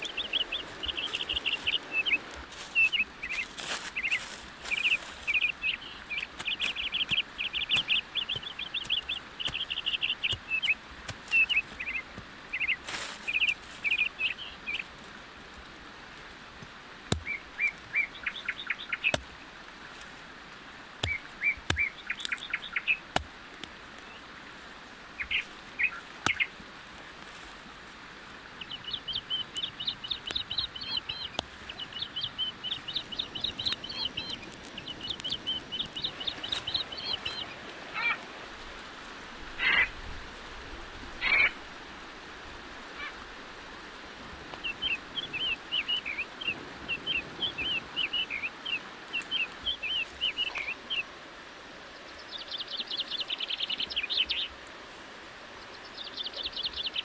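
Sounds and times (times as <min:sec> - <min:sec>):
small birds chirping: 0:00.0 - 0:15.0, 0:17.0 - 0:19.3, 0:21.0 - 0:24.3, 0:25.1 - 0:26.6, 0:28.6 - 0:38.3, 0:44.5 - 0:51.2, 0:51.8 - 0:54.7, 0:55.6 - 0:57.0.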